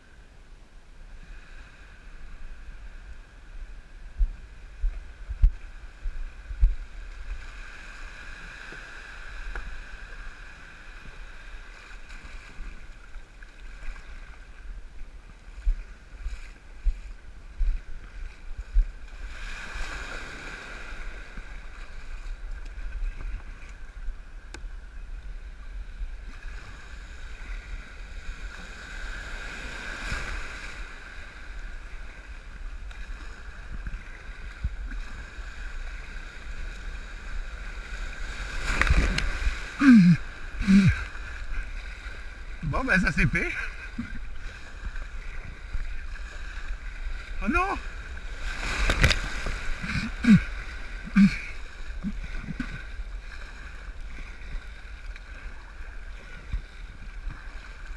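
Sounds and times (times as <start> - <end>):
small surf washing: 1.0 - 57.9
paddle splashes: 1.3 - 57.9
wind on microphone: 2.2 - 10.0.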